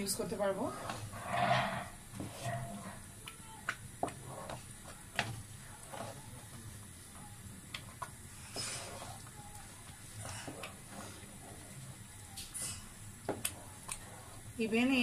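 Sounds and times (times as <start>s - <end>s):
spoon scraping a pan: 0.4s - 3.0s.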